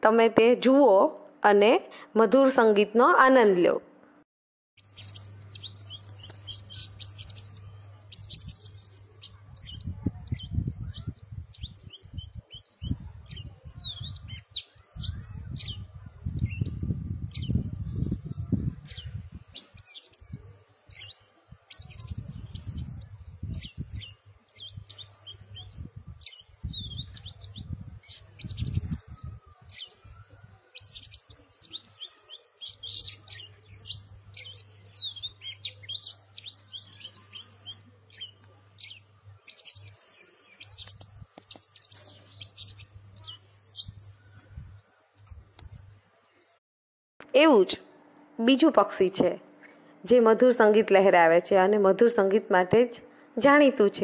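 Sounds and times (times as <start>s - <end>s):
bird singing whistled phrases: 19.8s - 44.4s.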